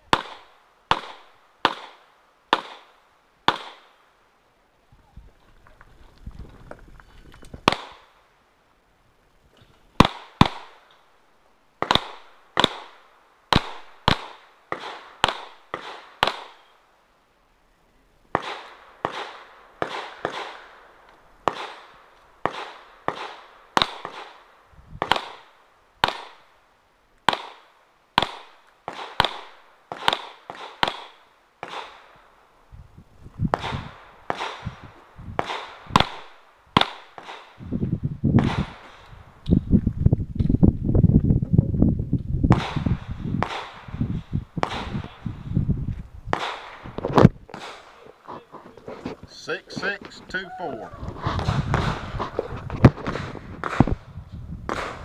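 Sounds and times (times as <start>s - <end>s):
pistol shots with echo: 0.1s - 4.0s, 7.6s - 8.2s, 10.0s - 10.8s, 11.8s - 16.7s, 18.3s - 26.4s, 27.3s - 32.1s, 33.6s - 34.6s, 35.4s - 37.6s.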